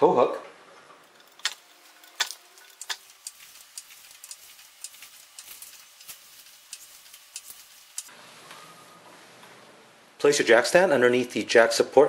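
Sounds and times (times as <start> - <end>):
floor jack pump clicking: 1.1 - 8.1.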